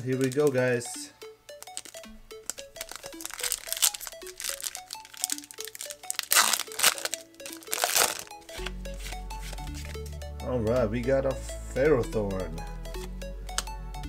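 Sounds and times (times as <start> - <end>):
foil wrapper crinkling: 0.0 - 0.8, 1.5 - 8.7
plucked notes music: 0.0 - 14.0.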